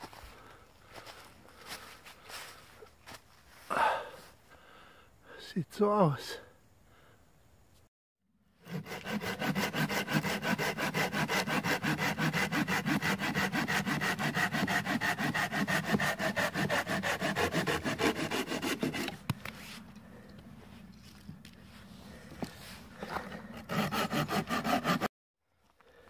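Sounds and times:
hand saw cutting wood: 0:08.6 - 0:19.7, 0:23.0 - 0:25.1.

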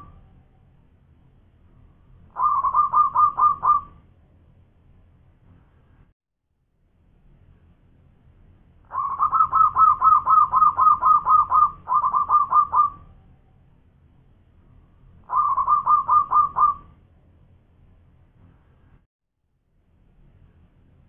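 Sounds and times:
dove cooing: 0:02.4 - 0:04.0, 0:08.9 - 0:13.2, 0:15.3 - 0:16.9.

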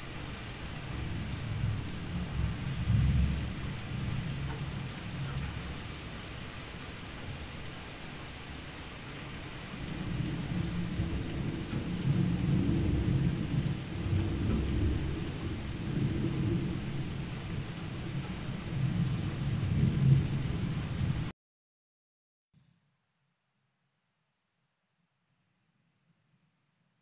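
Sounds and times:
steady rain: 0:00.0 - 0:21.3
rolling thunder: 0:01.0 - 0:05.8, 0:09.8 - 0:21.3.

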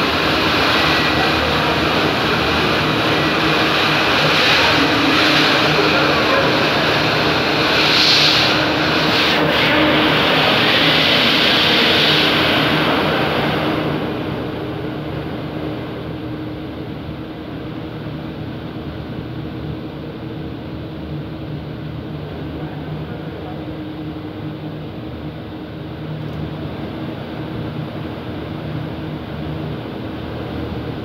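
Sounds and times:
air hiss: 0:00.0 - 0:13.5
machine drone with hum: 0:00.0 - 0:31.0.

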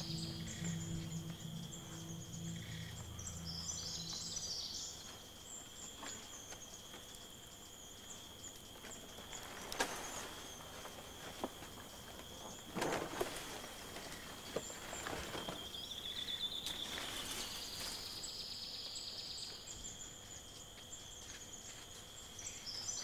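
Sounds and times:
bird chirps: 0:00.0 - 0:06.9
high insect buzz: 0:00.0 - 0:23.0.

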